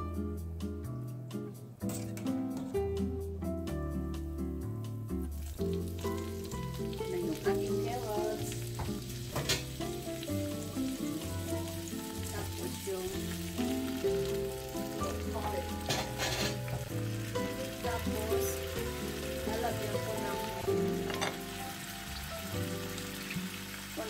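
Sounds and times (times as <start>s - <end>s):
background music: 0.0s - 24.0s
vegetables sizzling in hot oil: 5.1s - 24.0s.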